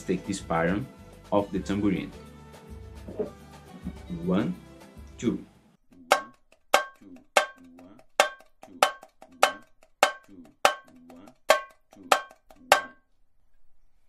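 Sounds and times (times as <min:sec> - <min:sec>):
small frame drum struck with stick: 0:06.0 - 0:13.0.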